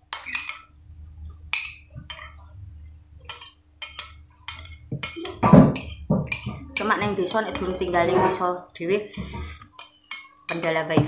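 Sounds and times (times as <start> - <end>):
metal spoon clinking ceramic bowl: 0.1 - 0.7, 3.3 - 8.0.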